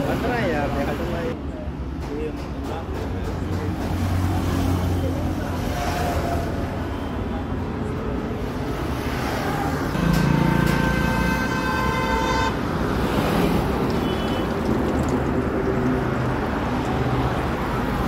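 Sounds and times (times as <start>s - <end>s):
traffic noise: 0.0s - 18.0s
vehicle horn: 10.0s - 12.6s.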